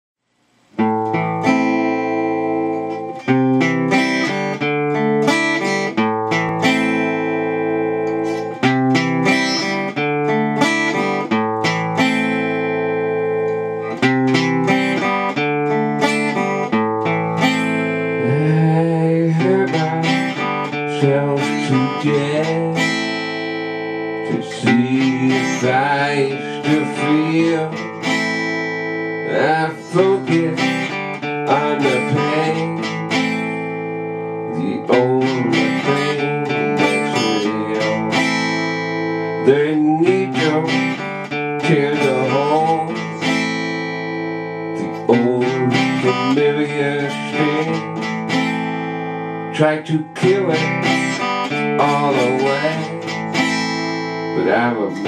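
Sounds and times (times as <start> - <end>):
acoustic guitar picking chords: 0.4 - 55.0.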